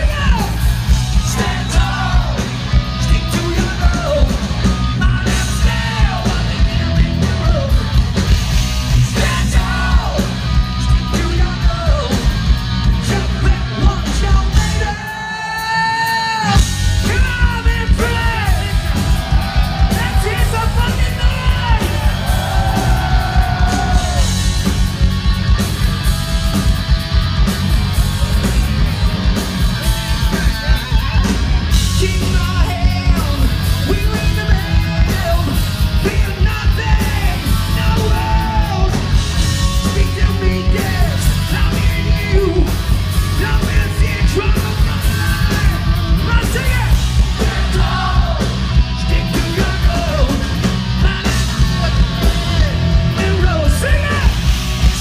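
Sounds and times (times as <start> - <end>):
drums: 0.0 - 55.0
electric guitar: 16.2 - 55.0.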